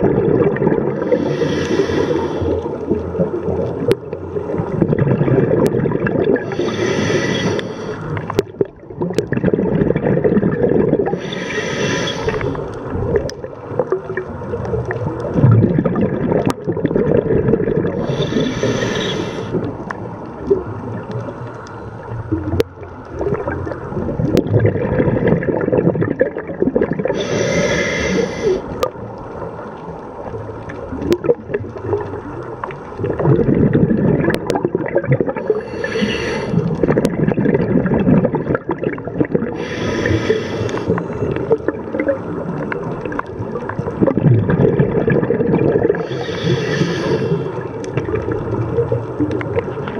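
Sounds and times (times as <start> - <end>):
gurgling exhaust bubbles: 0.0 - 1.9, 2.6 - 7.0, 8.3 - 19.7, 22.3 - 29.0, 33.0 - 49.9
regulator air hissing: 6.5 - 8.0, 11.2 - 12.5, 18.0 - 19.5, 27.2 - 28.7, 35.5 - 36.6, 39.6 - 41.0, 46.0 - 47.5.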